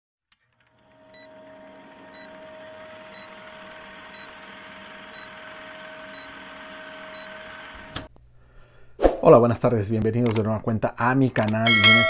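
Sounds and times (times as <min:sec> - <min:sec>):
film projector running: 0:00.4 - 0:08.1.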